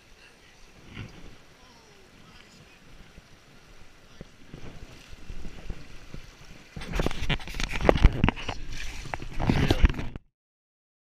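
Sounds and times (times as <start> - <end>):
flowing river water: 0.0 - 10.2
knocks and bumps on microphone: 4.5 - 10.3.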